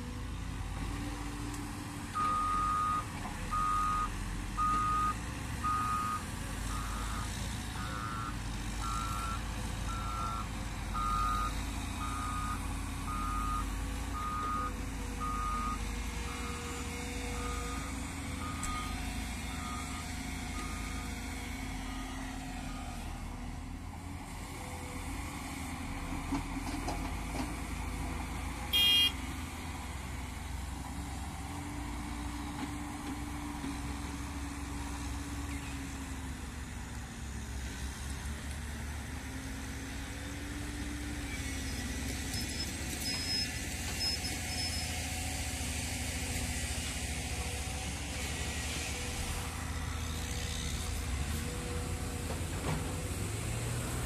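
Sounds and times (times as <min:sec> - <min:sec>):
diesel engine running: 0:00.0 - 0:37.4, 0:39.0 - 0:54.0
loud high beep: 0:28.8 - 0:29.2.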